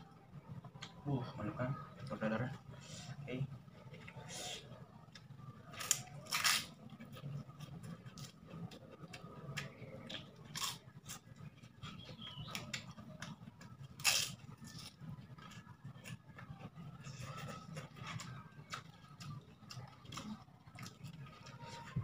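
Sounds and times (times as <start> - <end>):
chewing and crunching food: 0.0 - 22.0.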